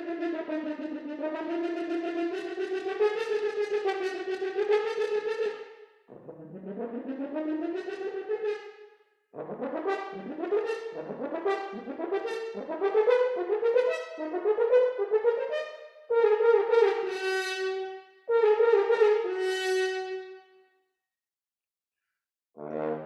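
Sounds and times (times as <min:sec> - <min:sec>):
solo horn playing: 0:22.6 - 0:23.0.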